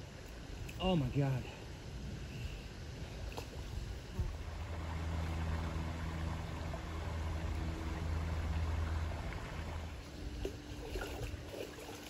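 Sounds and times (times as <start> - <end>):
low hum: 0.0 - 12.0
river water flowing: 0.0 - 12.0
water splashing around legs: 3.2 - 12.0.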